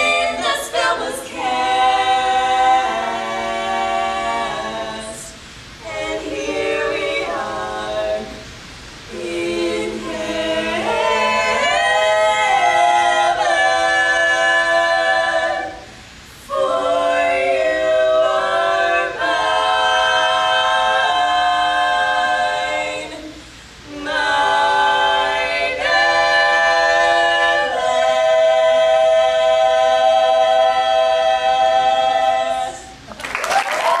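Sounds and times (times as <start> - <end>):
women singing a cappella in harmony: 0.0 - 33.2.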